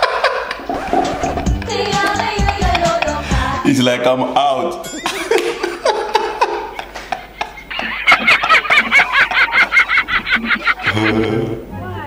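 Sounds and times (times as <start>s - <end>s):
man laughing hard: 4.8s - 11.6s.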